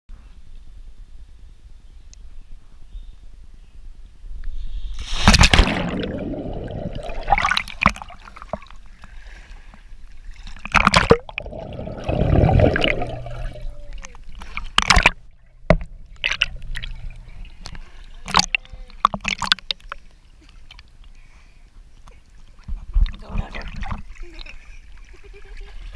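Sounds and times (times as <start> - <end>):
water splashing and sloshing: 4.8 - 25.9
underwater gurgling: 5.0 - 9.1, 10.1 - 21.0.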